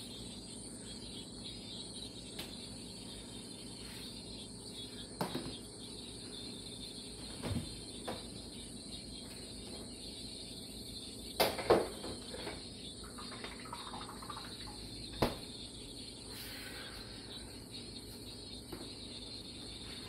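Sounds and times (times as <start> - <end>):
thin high-pitched hiss: 16.2 - 17.5.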